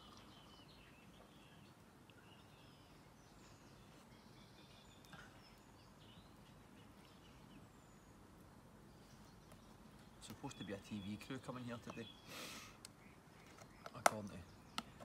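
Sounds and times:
high bird chirps: 9.0 - 15.0.

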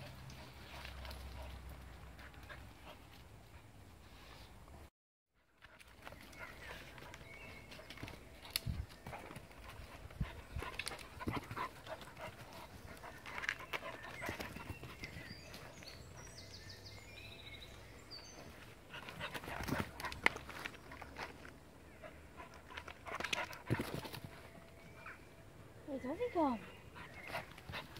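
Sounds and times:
dogs panting: 0.0 - 4.4, 5.6 - 16.6, 18.3 - 25.5, 26.4 - 27.9
twigs and leaves crackling underfoot: 5.5 - 16.1, 18.4 - 21.7.

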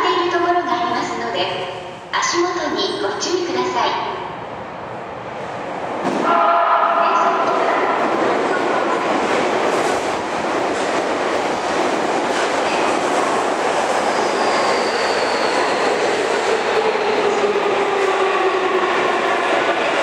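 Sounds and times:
train wheels rumbling on rail: 5.2 - 20.0
train whine falling in pitch: 6.1 - 8.1.

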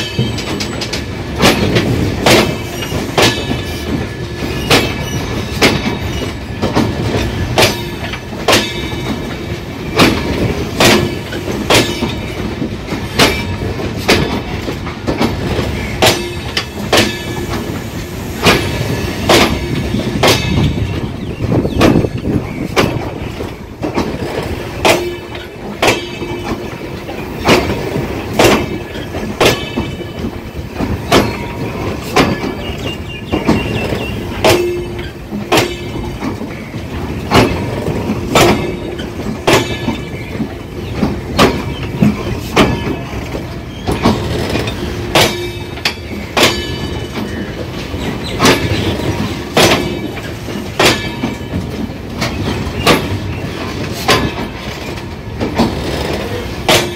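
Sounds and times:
train rumble: 0.0 - 56.9
train wheels clattering: 0.0 - 56.9.

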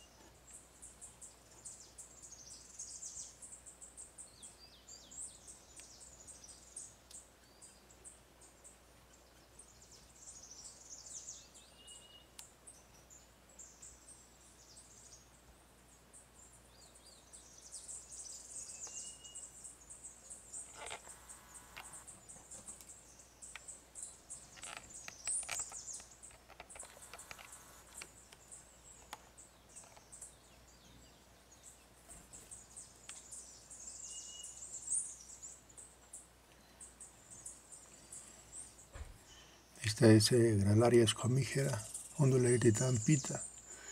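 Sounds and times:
rustling: 20.6 - 22.9.

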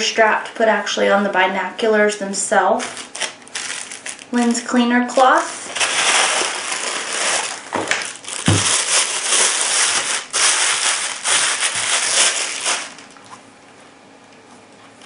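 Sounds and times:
plastic bag crinkling: 2.8 - 13.3
dull thump: 7.8 - 8.7.

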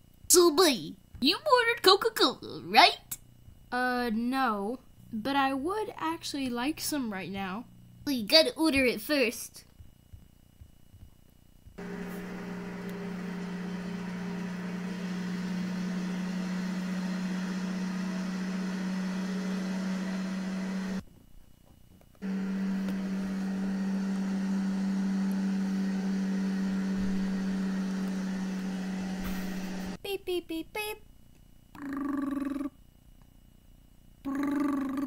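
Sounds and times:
person humming engine sound: 11.8 - 21.0, 22.2 - 30.0.

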